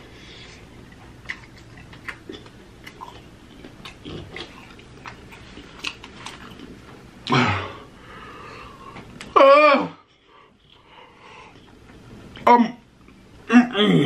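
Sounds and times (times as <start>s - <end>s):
person chewing bread: 0.0s - 7.4s.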